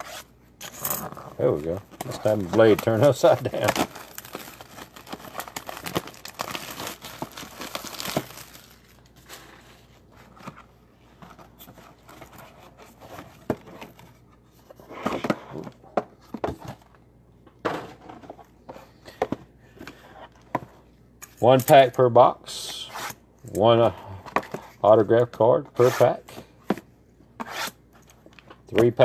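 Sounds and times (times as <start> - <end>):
plastic wrapping crinkling and tearing: 2.0 - 9.9.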